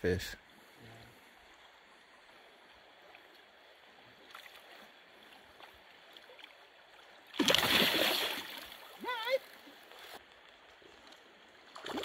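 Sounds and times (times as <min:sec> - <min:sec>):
faint river current rushing: 0:00.3 - 0:12.0
fish splashing at surface: 0:07.4 - 0:08.7.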